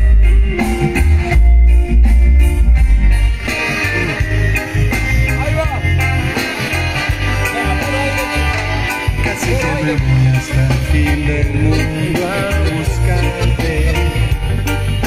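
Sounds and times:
live band playing latin dance song: 0:00.0 - 0:15.0
person singing: 0:07.4 - 0:14.4.

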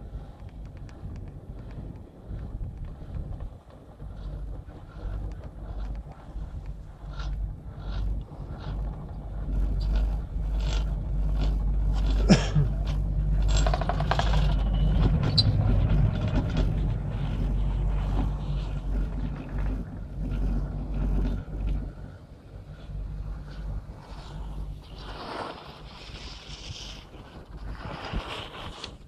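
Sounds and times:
steady low rumble: 0:00.0 - 0:29.0
rattling clatter: 0:04.0 - 0:25.1.

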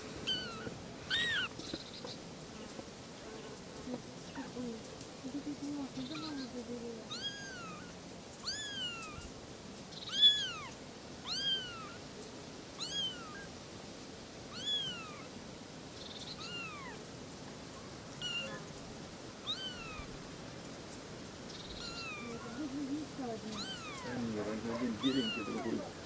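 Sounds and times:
kitten mewing: 0:00.3 - 0:01.8, 0:06.0 - 0:06.5, 0:07.1 - 0:09.2, 0:10.1 - 0:12.0, 0:12.8 - 0:13.5, 0:14.5 - 0:15.3, 0:16.4 - 0:17.0, 0:18.2 - 0:18.7, 0:19.4 - 0:20.1, 0:21.8 - 0:22.9, 0:23.5 - 0:26.0.

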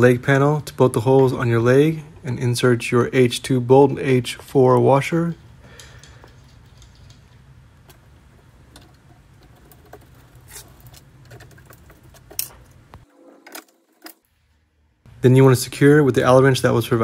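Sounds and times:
low steady hum: 0:00.0 - 0:17.0
metal bolts and washers clinking: 0:05.7 - 0:14.3.

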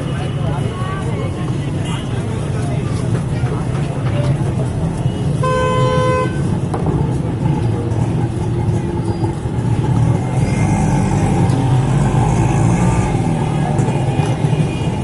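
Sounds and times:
traffic engines rumbling: 0:00.0 - 0:15.0
vehicle horn: 0:05.4 - 0:06.6.

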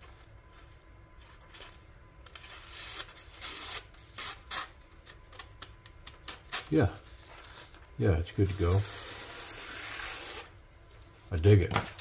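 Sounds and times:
knife slicing paper: 0:02.3 - 0:04.8.

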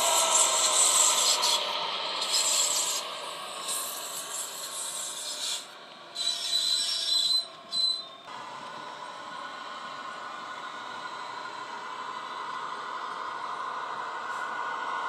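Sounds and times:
diesel engine drone from speaker: 0:00.0 - 0:04.7, 0:08.3 - 0:15.0
model train wheels rubbing: 0:00.0 - 0:08.1
wheels squealing on rails: 0:00.0 - 0:15.0.

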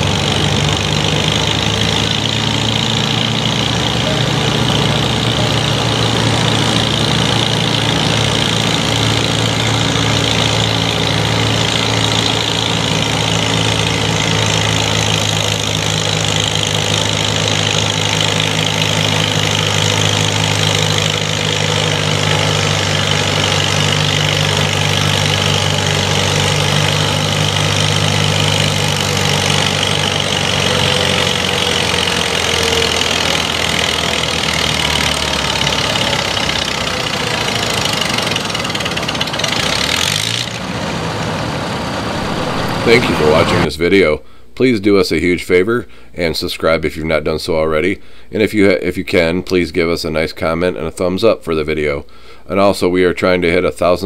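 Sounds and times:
tractor engine running under load: 0:00.0 - 0:43.7.

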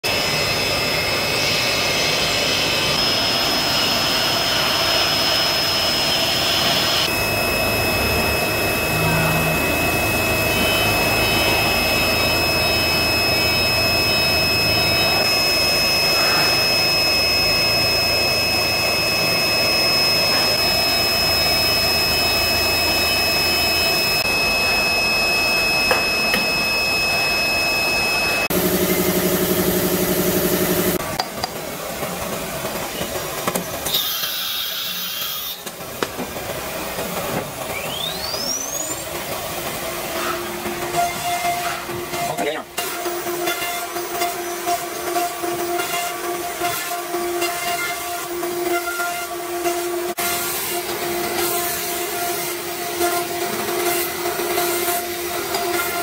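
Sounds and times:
router high-pitched whine: 0:00.0 - 0:56.0
lower whine: 0:00.1 - 0:33.7.

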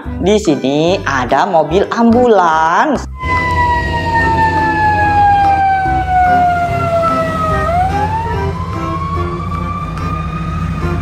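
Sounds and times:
ambulance siren wailing: 0:03.2 - 0:11.0
road traffic rumble: 0:03.2 - 0:11.0.

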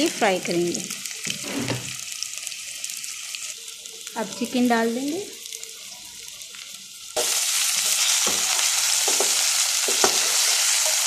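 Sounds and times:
food sizzling in hot oil: 0:00.0 - 0:11.0
spoon scraping and knocking pan: 0:07.2 - 0:11.0.

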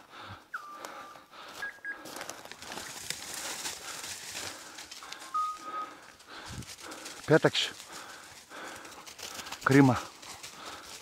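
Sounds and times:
leaves crackling underfoot: 0:00.8 - 0:11.0
short whistle tones: 0:05.3 - 0:05.8.

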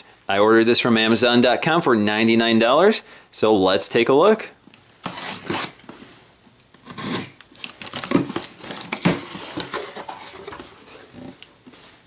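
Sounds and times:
blade slitting packing tape: 0:05.0 - 0:05.8, 0:06.7 - 0:09.7
plastic packing crinkling: 0:06.7 - 0:12.0.

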